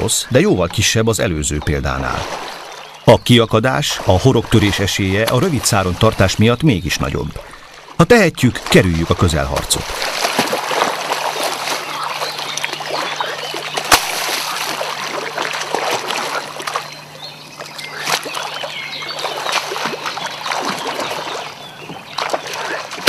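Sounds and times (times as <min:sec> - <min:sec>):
fish splashing at water surface: 0:09.6 - 0:23.0.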